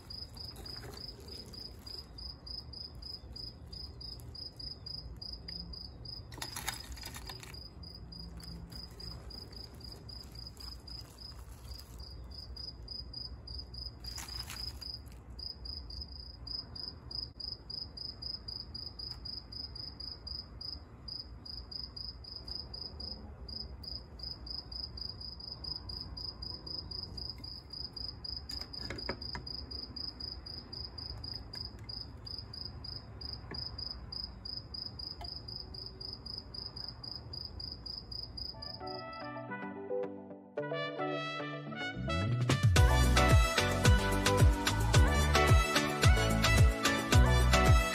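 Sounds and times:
cricket chirping trill: 0.0 - 39.0.

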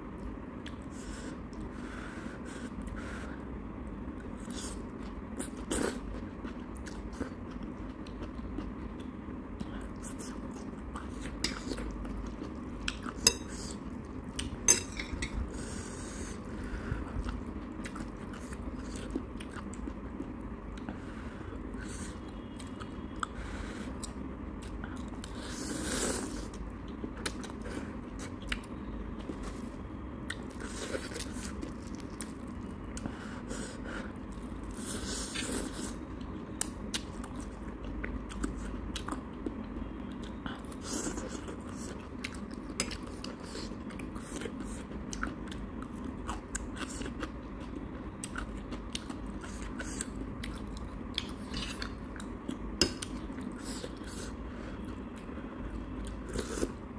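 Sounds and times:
chewing and slurping noodles: 40.2 - 56.8.

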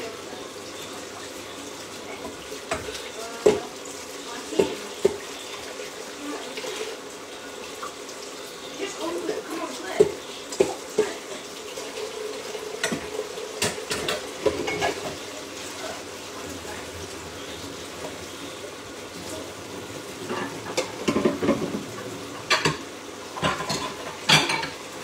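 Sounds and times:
dishes and utensils clinking: 12.8 - 15.2, 20.2 - 24.8.

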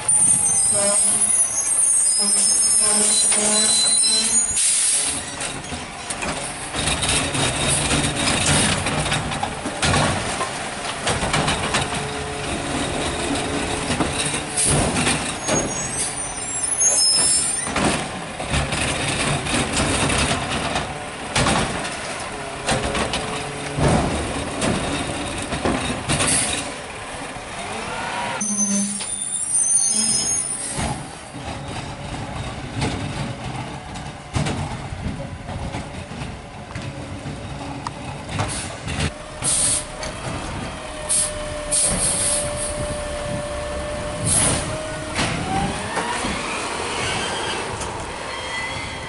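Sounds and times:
high squeal: 0.0 - 5.4, 15.3 - 17.7, 27.9 - 30.8, 46.9 - 49.0
truck engine under hydraulic load: 0.0 - 49.0
metal and bins clanking: 4.6 - 26.9, 29.9 - 47.1.

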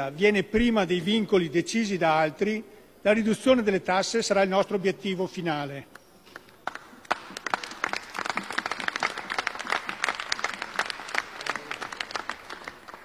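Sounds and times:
people clapping: 5.9 - 13.0.

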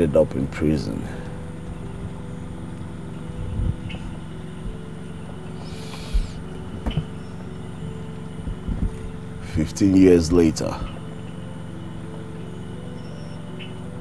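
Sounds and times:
low synth chords: 0.0 - 14.0
faint low knocks: 3.4 - 9.2.

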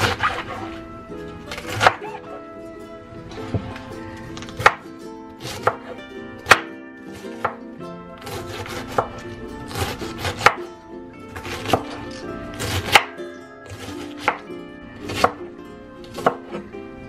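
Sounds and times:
background music: 0.0 - 17.0
knife chopping on wooden board: 1.5 - 2.0, 4.4 - 4.8, 5.4 - 6.7, 8.2 - 10.6, 11.4 - 12.0, 12.6 - 13.1, 13.8 - 14.5, 15.1 - 15.4, 16.1 - 16.6.

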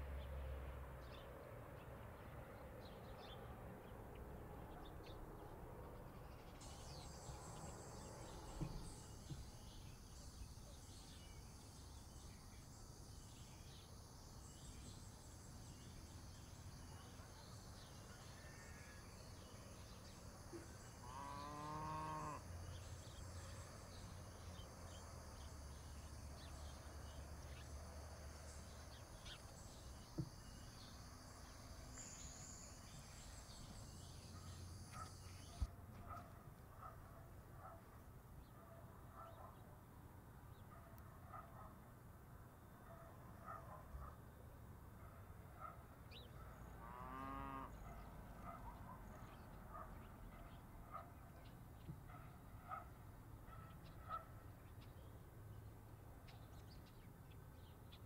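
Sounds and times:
cow mooing: 21.0 - 22.4, 46.8 - 47.8.

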